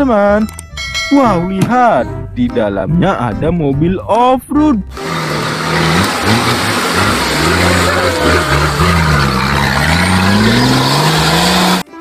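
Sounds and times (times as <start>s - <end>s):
buggy engine revving: 4.9s - 12.0s
rough rushing noise: 5.0s - 11.9s.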